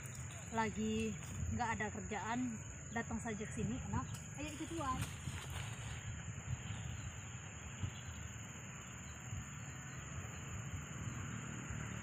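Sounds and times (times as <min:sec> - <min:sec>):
insects droning: 0:00.0 - 0:12.0
wind rumble on microphone: 0:00.0 - 0:12.0.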